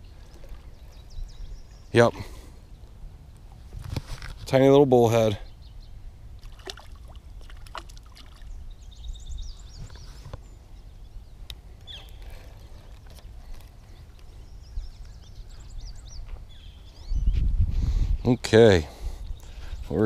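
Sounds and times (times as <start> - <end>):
small birds chirping: 0.0 - 3.5, 4.9 - 17.5, 18.3 - 20.0
wind rumble on microphone: 3.0 - 4.6, 8.4 - 20.0.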